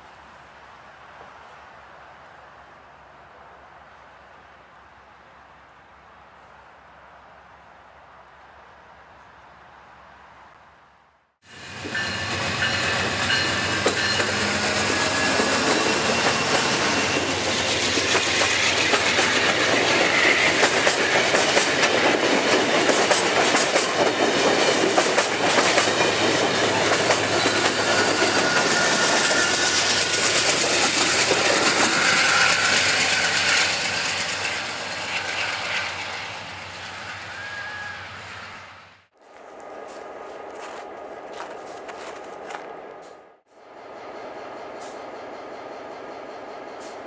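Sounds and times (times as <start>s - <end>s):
train wheels clacking over rail joints: 11.9s - 34.6s.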